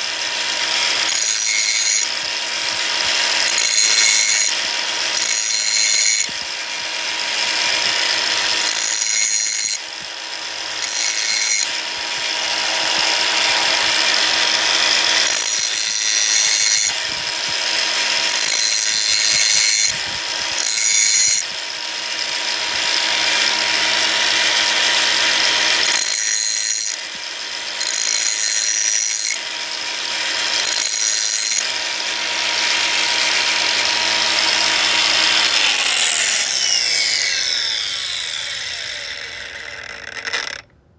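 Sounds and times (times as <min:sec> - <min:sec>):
drill bit rasping on grinder: 0:00.0 - 0:40.7
grinding wheel motor hum: 0:22.2 - 0:40.7.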